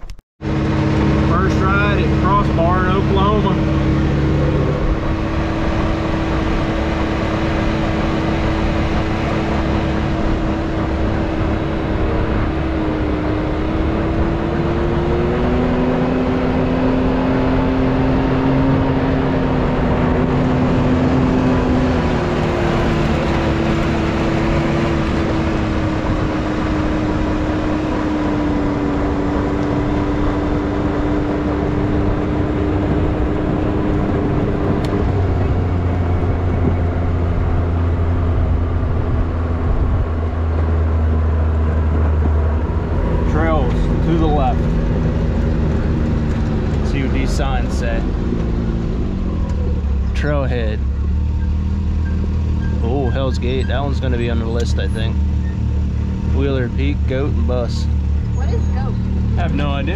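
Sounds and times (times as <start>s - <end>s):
deeper hum: 0.0s - 59.9s
vehicle engine driving: 0.0s - 59.9s
wind noise: 3.6s - 47.4s.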